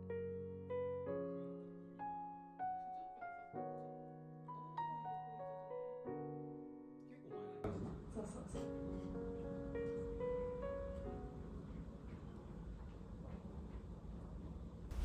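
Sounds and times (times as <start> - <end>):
slow gentle piano music: 0.0 - 13.1.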